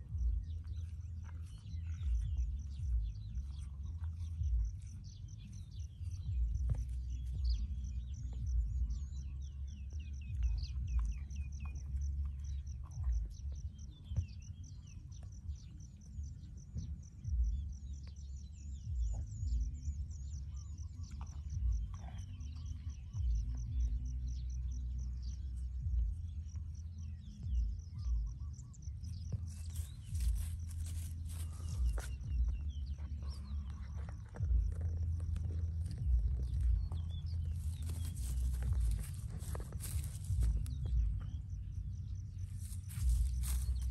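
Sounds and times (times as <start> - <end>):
birds chirping: 0.0 - 43.9
wind rumble on microphone: 0.0 - 43.9
calf chewing dry grass: 0.5 - 8.1, 29.2 - 43.9.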